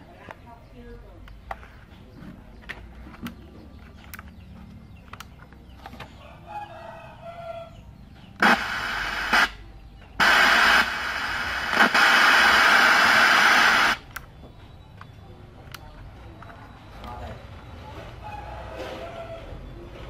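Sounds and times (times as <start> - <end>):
radio static hissing: 8.4 - 14.1.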